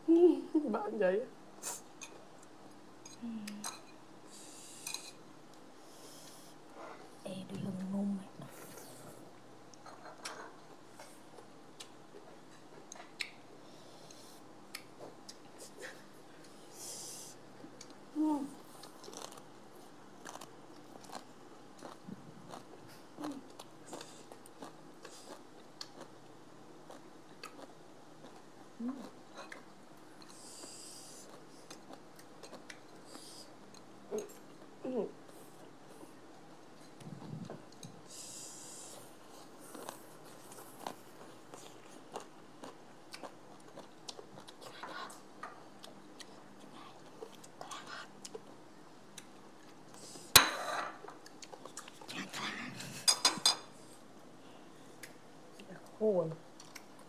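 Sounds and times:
chewing and crunching food: 6.2s - 16.6s, 17.5s - 50.3s, 51.0s - 52.4s, 56.5s - 57.0s.

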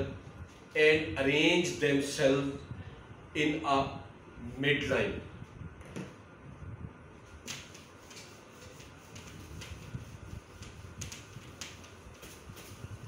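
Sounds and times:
duster rubbing on whiteboard: 7.4s - 13.0s.

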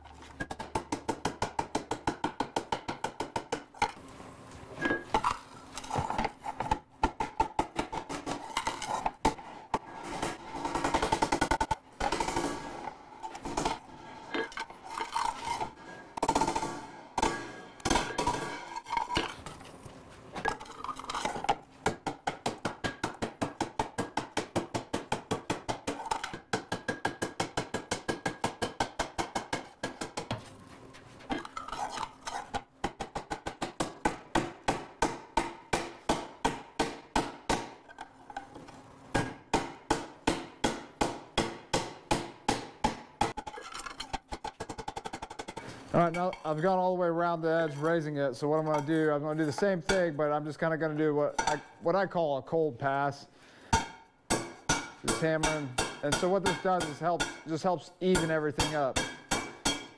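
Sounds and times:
hammer ringing on hot steel: 58.2s - 59.9s.

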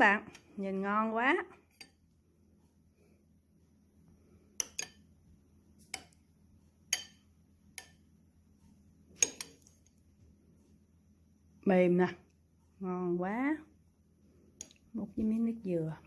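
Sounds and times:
metal spoon clinking on ceramic bowl: 1.7s - 2.0s, 4.6s - 5.1s, 6.9s - 8.0s, 9.2s - 9.7s.

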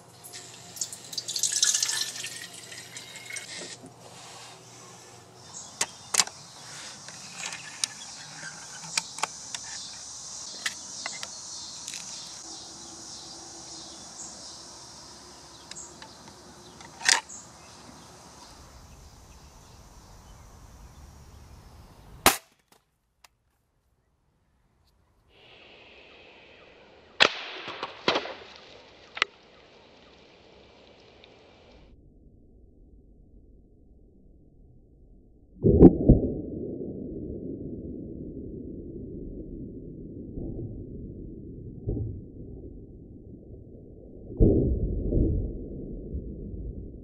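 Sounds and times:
steady high hiss: 0.0s - 22.3s, 25.3s - 31.8s
air rifle shot: 22.2s - 22.6s, 27.2s - 28.7s.

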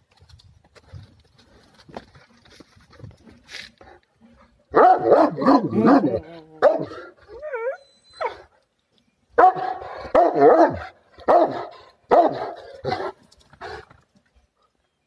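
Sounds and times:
dog barking: 4.8s - 7.0s, 9.4s - 13.2s.

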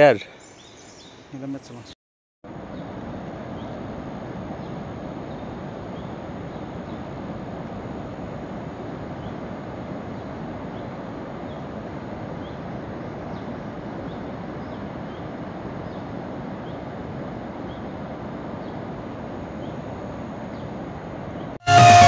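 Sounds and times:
bird chirping: 0.2s - 2.0s
distant river rushing: 2.5s - 22.0s.

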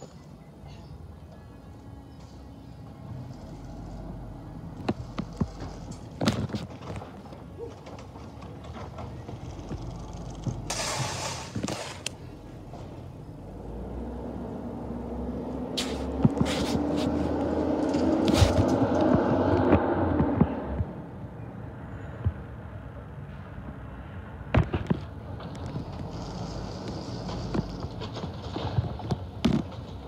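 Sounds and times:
garbage truck engine: 0.0s - 20.9s, 24.7s - 30.0s
hiss: 10.7s - 12.1s.

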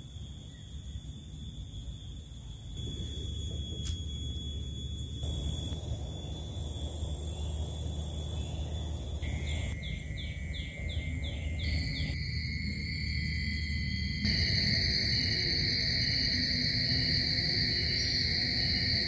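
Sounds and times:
high-pitched droning tones: 0.0s - 19.0s
steady low rumble: 0.1s - 19.0s
bird chirping: 2.8s - 12.2s.

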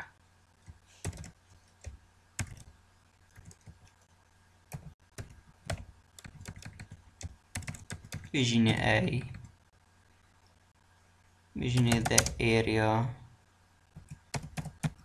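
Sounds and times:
computer keyboard typing: 0.6s - 2.7s, 3.3s - 4.0s, 4.7s - 8.4s, 11.7s - 12.5s, 13.9s - 15.0s.

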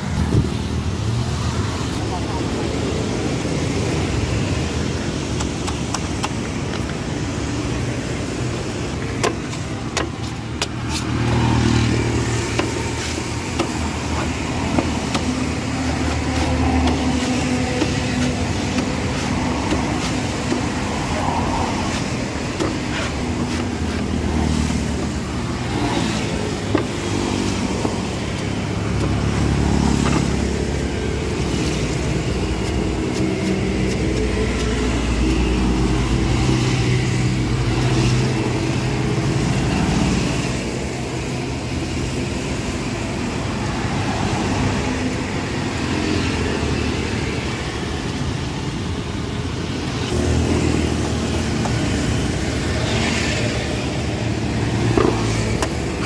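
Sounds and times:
road traffic rumble: 0.0s - 56.0s
cleaver chopping on wooden block: 9.2s - 11.1s, 12.5s - 20.8s, 26.3s - 29.3s.

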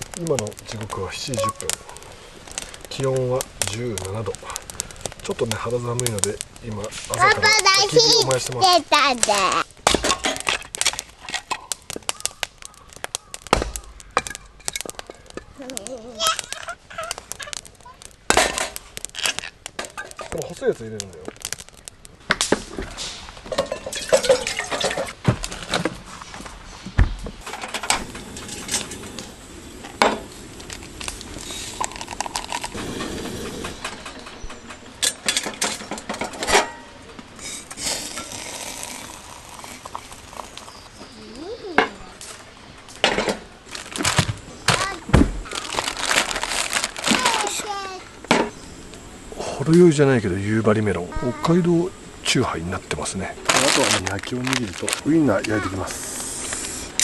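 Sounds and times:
wood knocking onto fire: 0.0s - 49.1s, 52.3s - 55.6s
campfire crackling: 0.0s - 57.0s
child's voice: 7.1s - 9.6s, 15.6s - 17.2s, 41.1s - 42.1s, 44.7s - 45.1s, 47.1s - 48.1s, 51.1s - 51.6s, 55.4s - 55.9s.

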